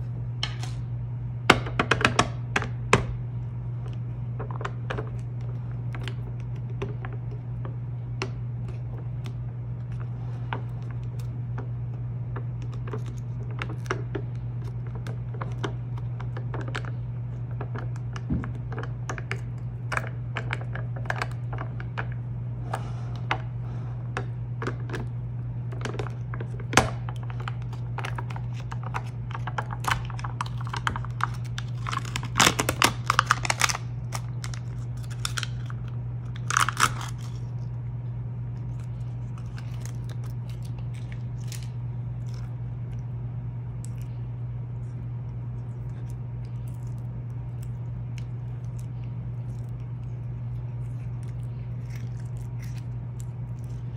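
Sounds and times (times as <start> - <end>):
steady low hum: 0.0 - 53.9
foil crinkling: 27.2 - 37.6.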